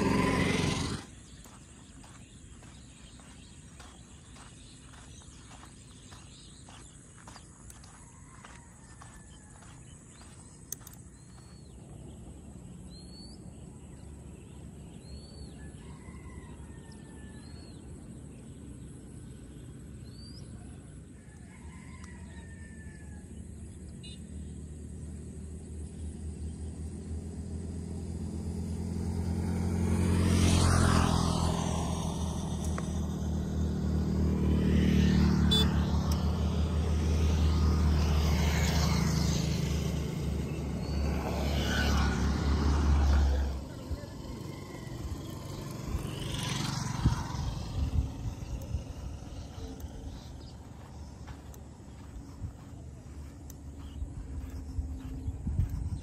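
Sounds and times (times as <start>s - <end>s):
vehicle engine passing: 0.0s - 13.0s, 24.3s - 56.0s
birds chirping: 0.0s - 24.8s, 30.3s - 56.0s
rooster crowing: 7.8s - 9.9s, 15.5s - 17.6s, 21.2s - 23.3s.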